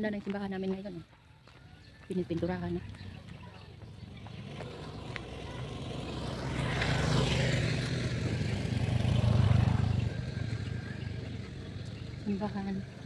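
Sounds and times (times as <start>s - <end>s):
vehicle engine passing by: 2.8s - 13.0s.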